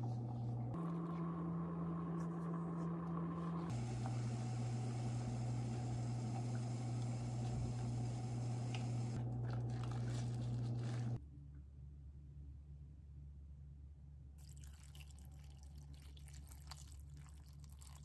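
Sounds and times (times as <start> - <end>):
kitchen appliance humming: 0.0 - 11.2
soft crinkling of leaves: 8.7 - 11.2.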